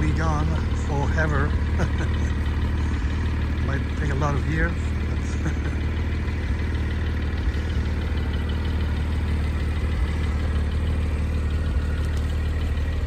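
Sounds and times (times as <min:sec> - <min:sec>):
car engine idling: 0:00.0 - 0:13.0
faint regular ticking: 0:00.0 - 0:13.0.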